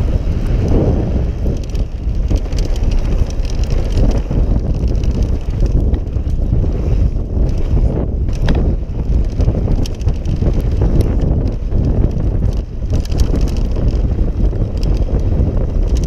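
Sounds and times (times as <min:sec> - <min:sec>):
bike clicks and rattles: 0:00.0 - 0:16.0
tyres rolling on dirt: 0:00.0 - 0:16.0
wind buffeting microphone: 0:00.0 - 0:16.0.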